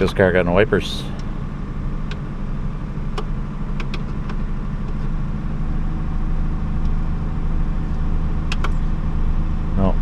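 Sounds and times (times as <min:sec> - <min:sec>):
car engine idling: 0:00.0 - 0:10.0
dashboard switch clicks: 0:02.0 - 0:02.3, 0:03.1 - 0:05.1, 0:08.4 - 0:08.8.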